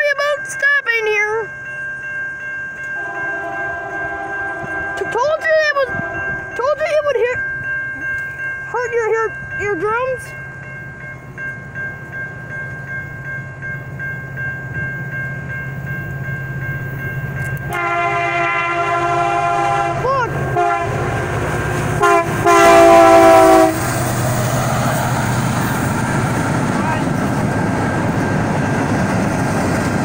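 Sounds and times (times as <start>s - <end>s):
crossing bell ringing: 0.0s - 30.0s
diesel train rumble: 2.8s - 30.0s
locomotive air horn blasts: 3.0s - 6.5s, 17.7s - 21.3s, 22.0s - 23.9s.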